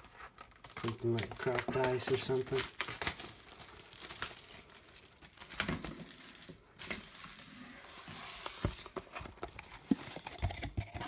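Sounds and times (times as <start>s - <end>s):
cardboard box rustling: 5.1s - 10.7s.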